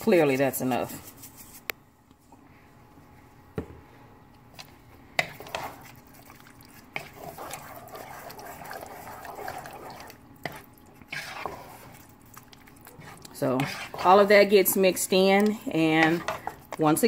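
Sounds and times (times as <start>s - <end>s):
wet sloppy stirring in a pot: 4.3s - 17.0s.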